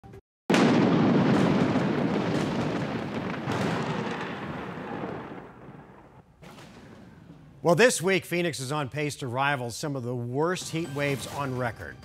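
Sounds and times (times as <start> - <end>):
thunder clap and rumble: 0.5 - 7.6.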